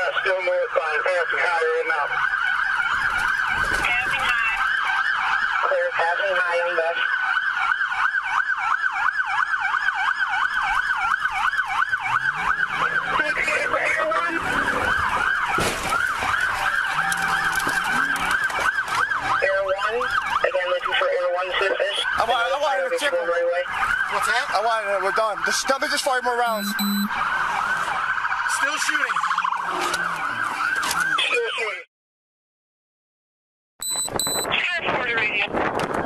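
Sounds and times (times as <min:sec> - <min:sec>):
police siren yelping: 0:00.0 - 0:31.9, 0:33.8 - 0:34.6.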